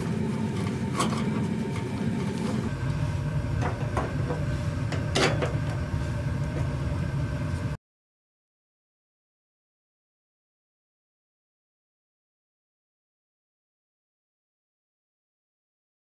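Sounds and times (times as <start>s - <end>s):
gas burner rumbling: 0.0s - 7.8s
metal cover scraping and clicking: 0.5s - 2.6s, 3.6s - 5.8s.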